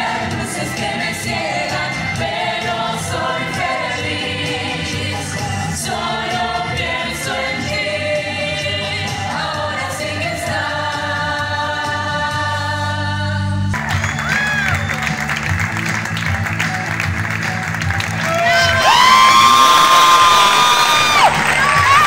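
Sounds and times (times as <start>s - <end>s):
chorus singing: 0.0s - 13.8s
music: 0.0s - 22.0s.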